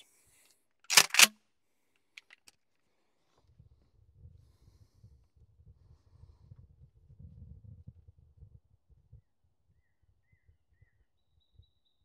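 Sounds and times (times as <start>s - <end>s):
shotgun slide clacks: 0.9s - 1.3s.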